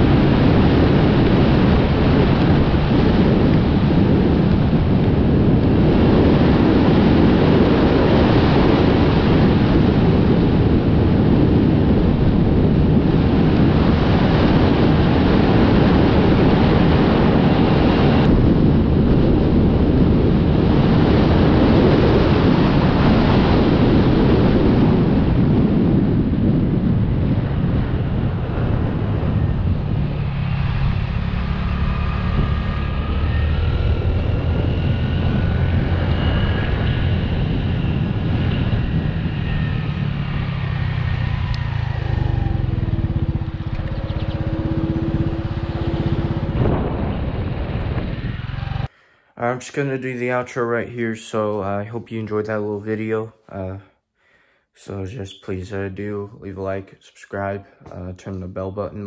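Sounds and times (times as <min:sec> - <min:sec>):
wind rushing over microphone: 0:00.0 - 0:53.9, 0:54.8 - 0:59.0
motorcycle engine: 0:26.0 - 0:49.0.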